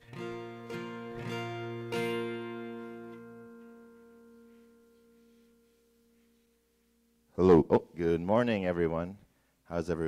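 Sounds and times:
guitar chords strummed: 0.0 - 7.4.

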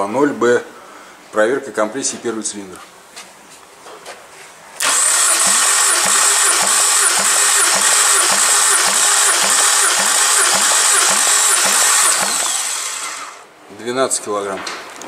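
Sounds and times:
engine starter cranking: 4.8 - 13.5.

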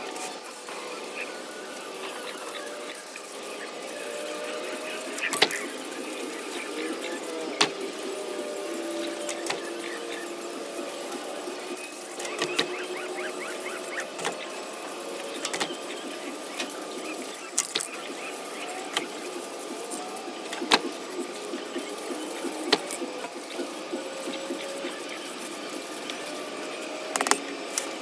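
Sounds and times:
steady mechanical hum: 0.0 - 28.0
sharp clicks: 9.0 - 26.4.

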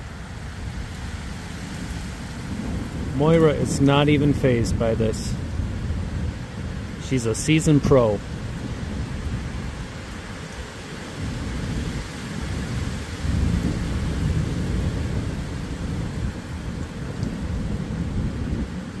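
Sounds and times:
low rumble of thunder: 0.0 - 19.0
steady rain: 0.0 - 19.0.

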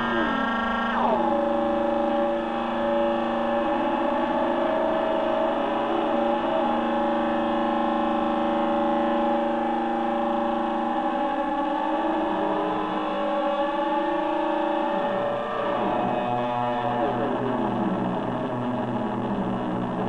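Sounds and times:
electronic drone music: 0.0 - 20.0.

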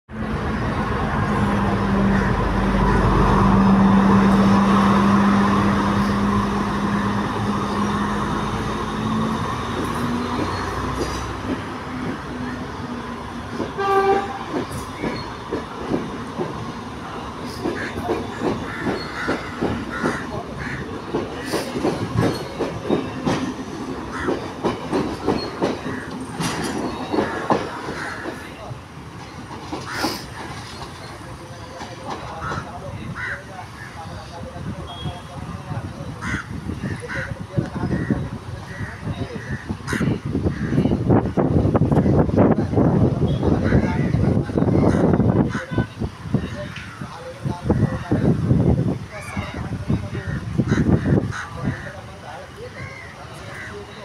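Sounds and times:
train rumble: 0.1 - 54.0
train wheels clattering over rail joints: 13.3 - 16.8, 17.4 - 32.9.

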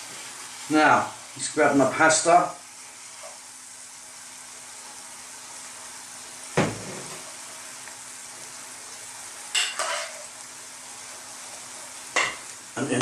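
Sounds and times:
sauce sizzling in a frying pan: 0.0 - 13.0.

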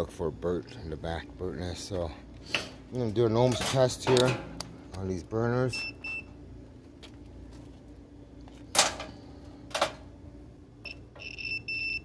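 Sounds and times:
multimeter continuity beeps: 5.7 - 6.4, 10.8 - 12.0.

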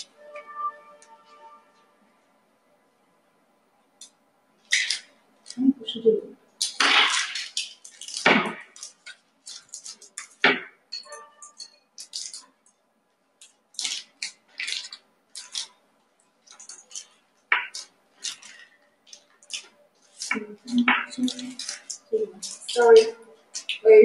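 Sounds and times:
plastic packets crinkling: 4.6 - 5.7, 6.5 - 10.7, 11.4 - 12.8, 13.4 - 23.8.

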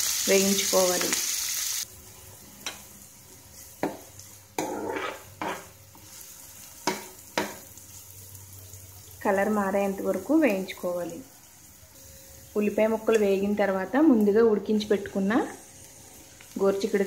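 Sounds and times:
onions sizzling in oil: 0.0 - 17.0
metal spoon scraping frying pan: 4.6 - 5.8.

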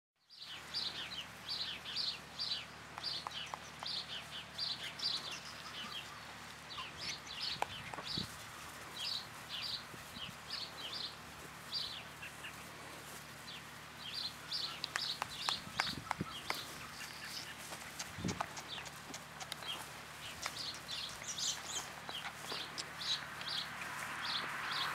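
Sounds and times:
small birds chirping: 0.2 - 24.9
sharp clicks: 14.8 - 16.6.

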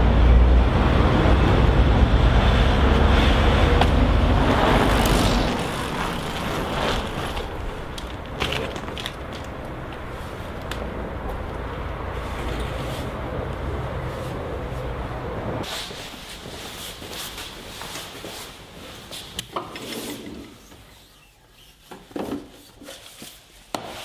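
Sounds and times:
bus passing with low rumble: 0.0 - 16.8
street traffic: 0.0 - 17.6
bicycle clicking and rattling: 3.8 - 11.6.

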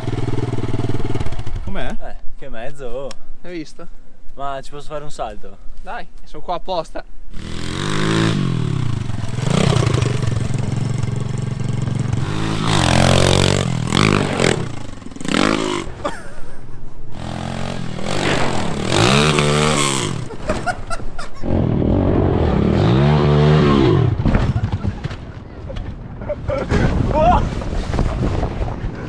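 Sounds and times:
pit bike engine revving: 0.0 - 1.8, 7.3 - 16.4, 17.1 - 20.7, 21.4 - 24.2.

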